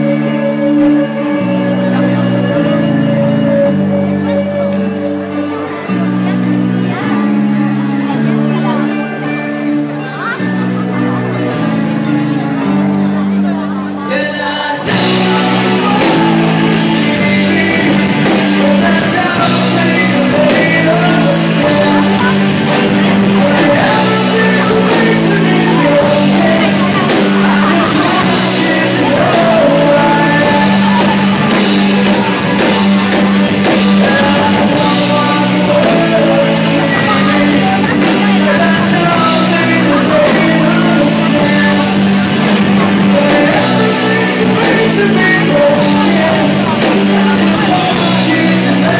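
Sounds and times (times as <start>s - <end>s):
bass line: 0.0s - 48.9s
drums: 0.0s - 48.9s
electric guitars: 0.0s - 48.9s
person singing: 0.0s - 48.9s.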